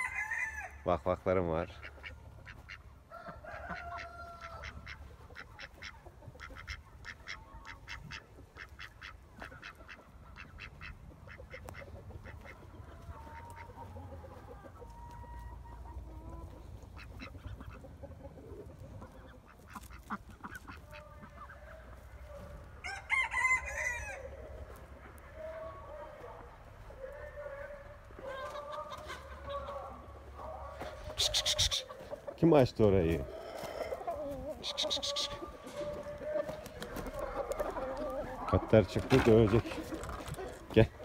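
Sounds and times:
loud chicken call: 0.0 - 0.9, 2.4 - 5.9, 19.7 - 32.3, 33.1 - 39.2
chickens and ducks calling: 0.0 - 41.0.

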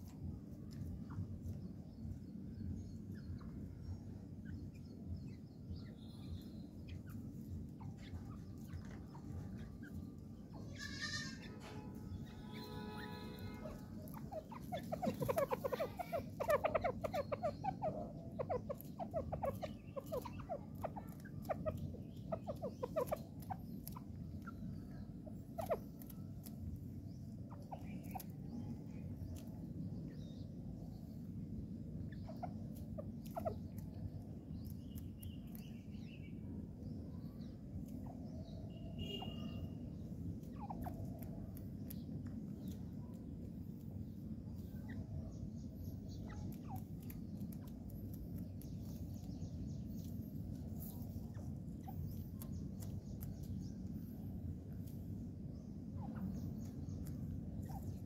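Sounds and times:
steady low hum: 0.0 - 58.0
partridge calling: 10.8 - 26.6, 39.0 - 39.8, 44.5 - 53.9.

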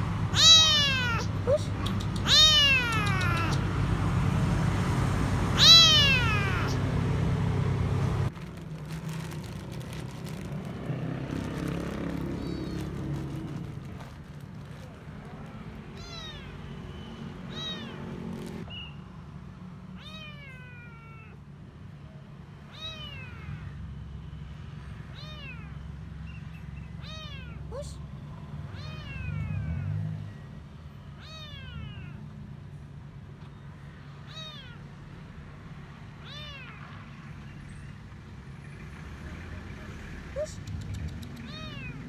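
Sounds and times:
kitten meowing: 0.3 - 3.7, 5.6 - 6.8, 12.2 - 18.6, 20.0 - 21.4, 22.7 - 23.7, 25.1 - 25.8, 27.0 - 28.0, 28.8 - 29.8, 31.2 - 32.2, 34.2 - 34.9, 36.2 - 36.8, 40.4 - 42.0.

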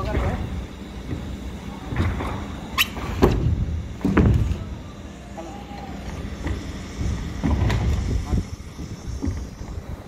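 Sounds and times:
wind buffeting microphone: 6.9 - 10.0.

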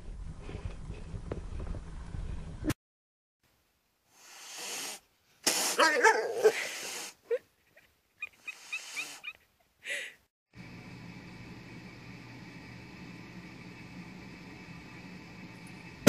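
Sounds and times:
short hiss: 4.1 - 5.8.

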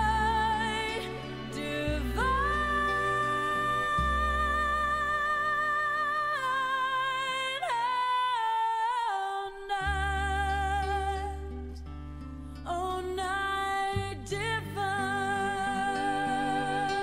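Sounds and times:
bass line: 0.0 - 6.8
high singing voice: 0.0 - 11.8, 12.7 - 17.0.

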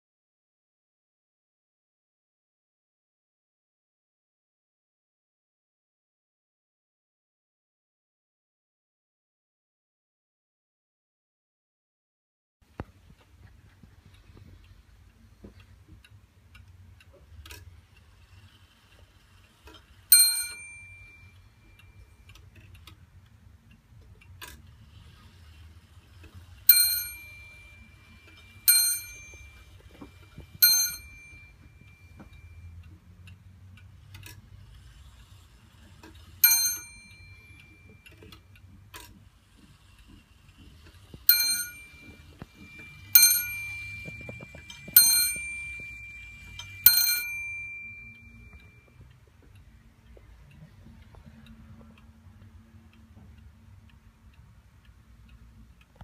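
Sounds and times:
clock ticking faintly: 12.6 - 56.0
clock bell striking: 20.1 - 21.8, 26.7 - 32.8, 36.4 - 38.0, 41.3 - 49.0.

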